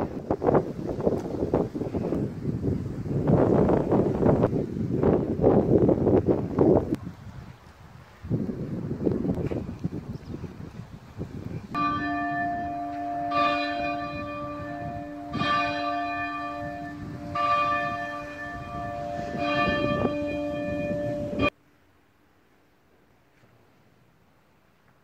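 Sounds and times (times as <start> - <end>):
wind buffeting microphone: 0.0 - 21.5
church bell tolling: 11.8 - 21.5.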